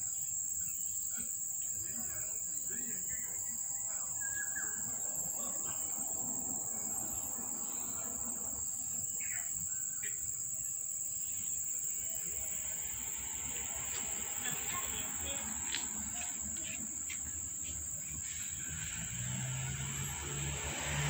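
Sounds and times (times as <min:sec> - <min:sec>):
bird chirps: 0:00.0 - 0:12.9
high-pitched insect chorus: 0:00.0 - 0:21.0.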